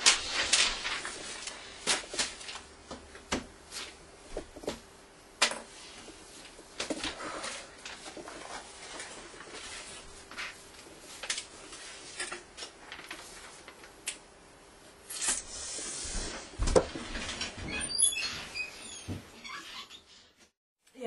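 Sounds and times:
rustling: 0:00.0 - 0:02.7.

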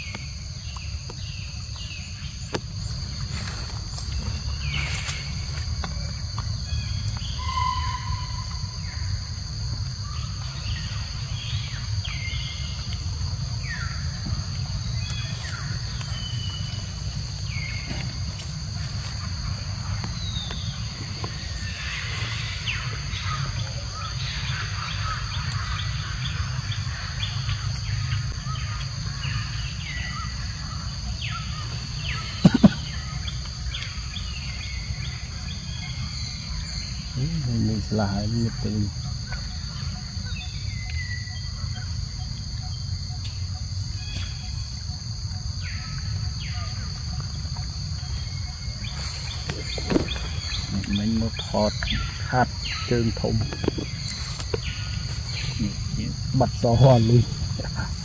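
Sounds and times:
high insect drone: 0:00.0 - 0:58.0
sharp knock: 0:32.4 - 0:32.9.

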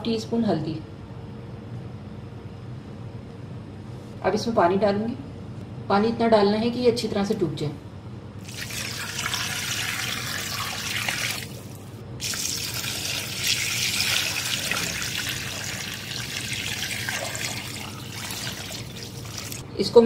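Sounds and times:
water pouring into a metal pot: 0:08.4 - 0:19.6
water splashing onto meat: 0:12.2 - 0:19.6.

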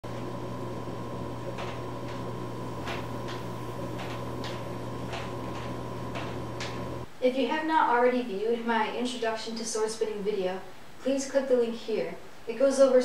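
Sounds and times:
electrical hum: 0:00.0 - 0:07.3.

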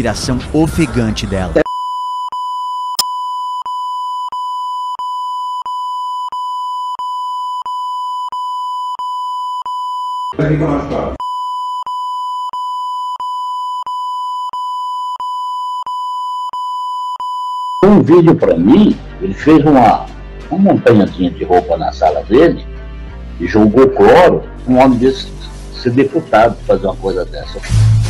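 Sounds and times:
censor beep tone: 0:01.6 - 0:10.4, 0:11.2 - 0:18.0
loud burst of noise: 0:27.6 - 0:28.0.

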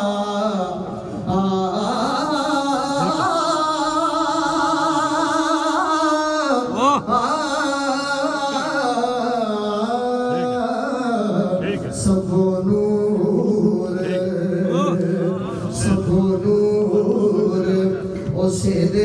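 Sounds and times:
man singing into a microphone: 0:00.0 - 0:19.0.

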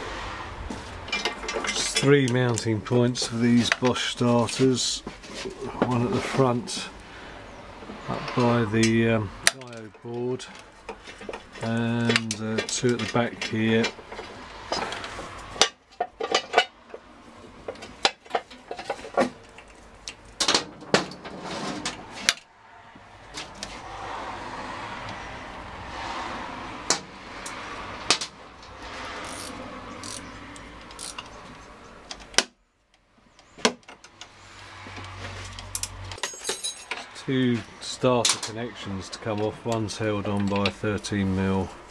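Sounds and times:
scraping and rustling among wiring: 0:00.6 - 0:22.5, 0:23.2 - 0:32.3, 0:33.2 - 0:41.9
spanner clinking on metal: 0:01.1 - 0:02.7, 0:35.5 - 0:37.2.

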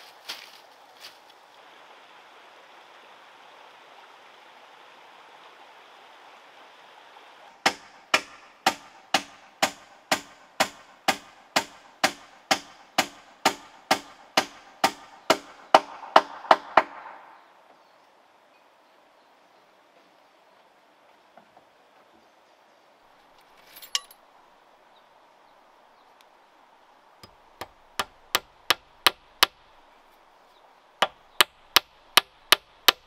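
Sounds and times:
steady background hiss: 0:00.0 - 0:33.0
sharp knocks on bamboo: 0:07.6 - 0:17.2, 0:27.2 - 0:29.6, 0:31.0 - 0:33.0.

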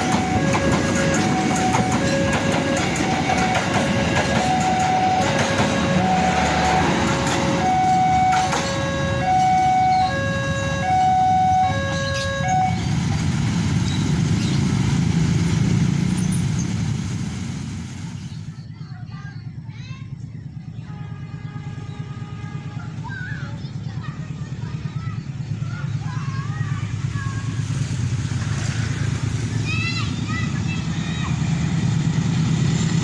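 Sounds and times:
low road traffic rumble: 0:00.0 - 0:33.0
passing train rumble: 0:00.0 - 0:33.0
level crossing alarm two-note signal: 0:00.1 - 0:12.8.

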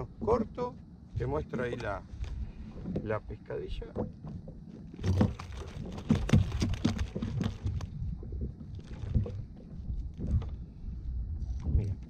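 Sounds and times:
knocks and taps on a kayak: 0:03.8 - 0:08.4.

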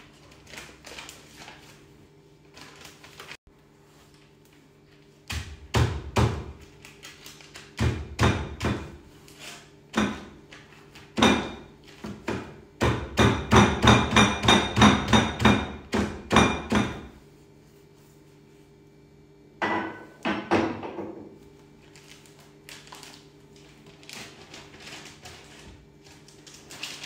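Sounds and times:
thuds of meat being pounded: 0:05.3 - 0:06.6, 0:07.8 - 0:09.0, 0:11.2 - 0:17.1.

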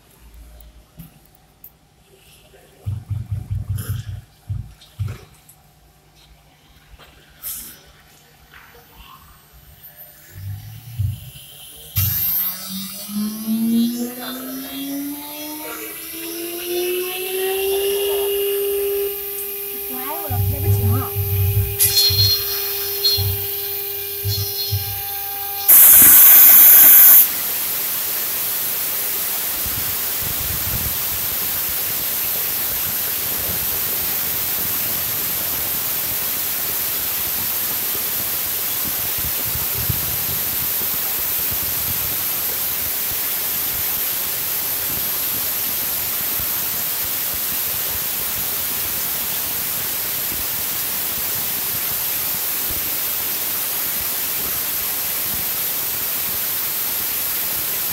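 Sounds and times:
router spindle whine: 0:09.5 - 0:28.1
loud burst of noise: 0:10.2 - 0:57.9
steady hiss-like noise: 0:19.0 - 0:57.9.

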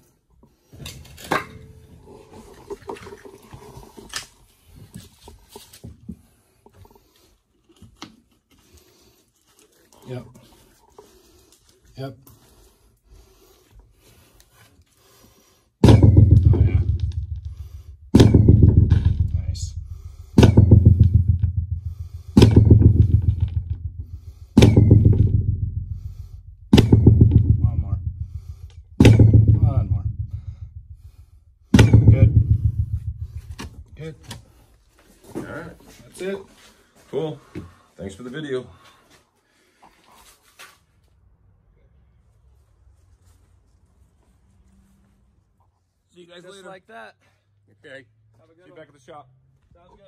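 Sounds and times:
sledgehammer striking pipe: 0:00.9 - 0:02.0, 0:15.8 - 0:34.4
sharp knocks: 0:15.8 - 0:34.1.

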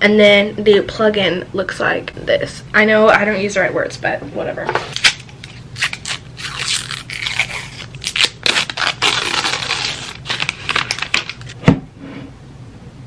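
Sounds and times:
plastic wrap tearing: 0:04.9 - 0:11.6.

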